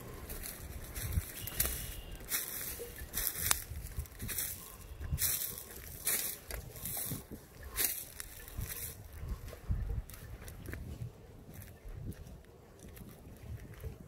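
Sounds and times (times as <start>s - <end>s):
footsteps in dry leaves: 0.0s - 13.7s.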